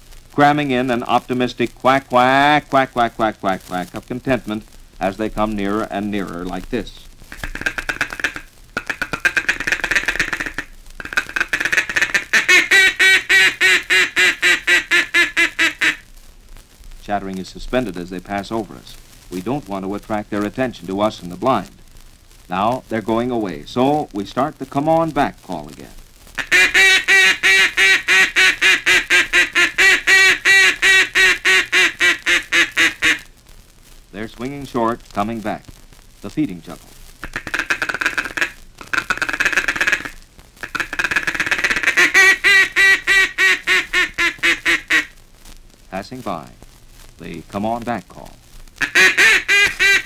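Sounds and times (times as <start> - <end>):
duck call quacking: 7.3 - 16.0, 26.4 - 33.3, 37.2 - 45.2, 48.8 - 50.0.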